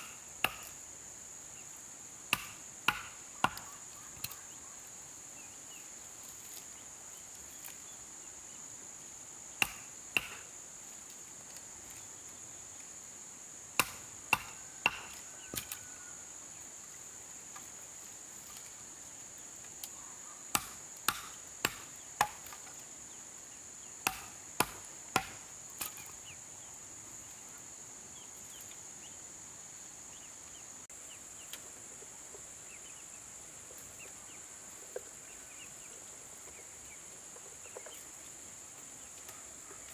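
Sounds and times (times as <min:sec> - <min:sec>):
hand tool striking wood: 0:00.0 - 0:00.8, 0:02.3 - 0:04.4, 0:09.6 - 0:10.4, 0:13.8 - 0:15.8, 0:20.5 - 0:22.7, 0:24.0 - 0:26.1.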